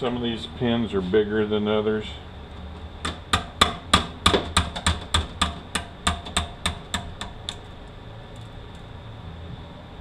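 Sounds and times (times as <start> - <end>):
hammer tapping metal punch: 3.0 - 7.7.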